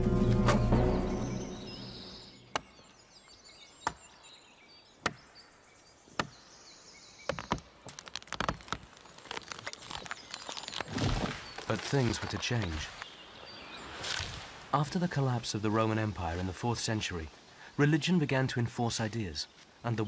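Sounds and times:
axe chopping wood: 2.5s - 2.7s, 6.2s - 6.4s, 7.3s - 8.9s
wood splintering: 7.3s - 13.0s.

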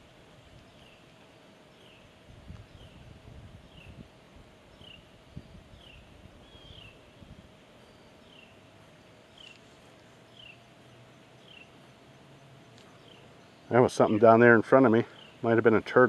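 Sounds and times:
faint steady hum: 0.0s - 16.0s
bird calling: 5.7s - 7.2s, 9.2s - 11.8s, 12.7s - 16.0s.

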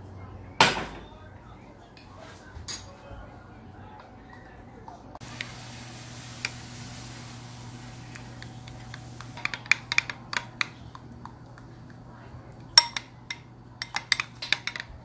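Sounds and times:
steady low hum: 0.0s - 15.0s
spoon clinking against glass bowl: 12.8s - 14.9s.

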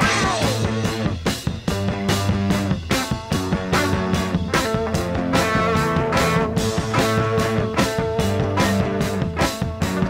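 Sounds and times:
rock music: 0.0s - 10.0s.

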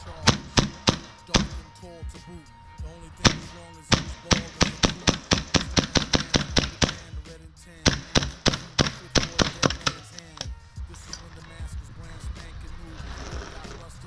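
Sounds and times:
background music: 0.0s - 14.0s
airsoft pistol firing: 0.2s - 1.7s, 3.2s - 7.2s, 7.8s - 10.4s.

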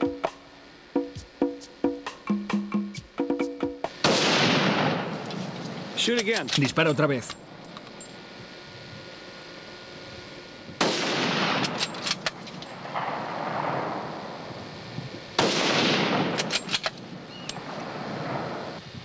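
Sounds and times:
rifle shots: 4.0s - 5.9s, 10.8s - 14.1s, 15.4s - 18.6s
long rolling echo: 12.7s - 14.7s, 17.0s - 18.8s.

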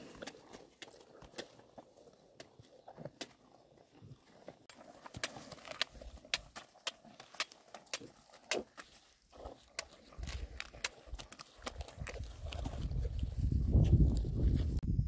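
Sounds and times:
crunching bamboo shoots: 4.6s - 14.4s.

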